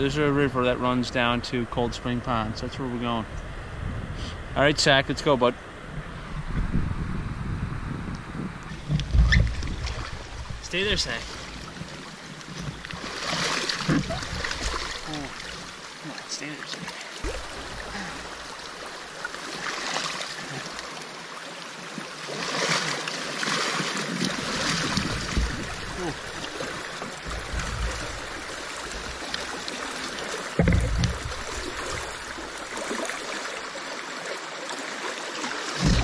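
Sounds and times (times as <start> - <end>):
river water rushing: 9.6 - 36.0
low thump: 17.2 - 17.8, 24.9 - 25.8, 30.6 - 31.5, 35.8 - 36.0.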